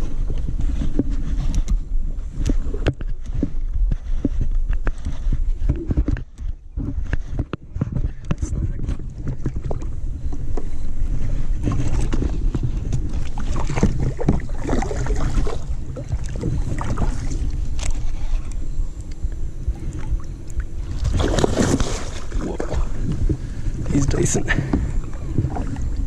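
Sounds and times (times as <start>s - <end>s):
camera handling rumble: 0.0s - 14.6s, 15.3s - 25.5s
low wind: 0.0s - 26.0s
fish splashing at water surface: 20.8s - 22.9s.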